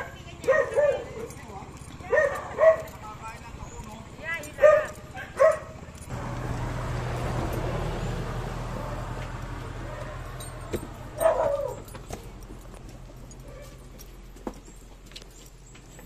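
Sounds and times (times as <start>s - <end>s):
dog barking: 0.0s - 1.4s, 2.0s - 3.0s, 4.6s - 5.8s, 9.8s - 10.4s, 11.1s - 11.9s, 13.4s - 13.8s
vehicle passing: 4.1s - 13.9s.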